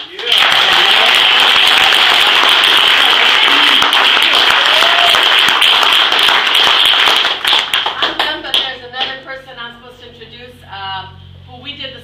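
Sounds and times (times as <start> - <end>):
people applauding: 0.0 - 8.7.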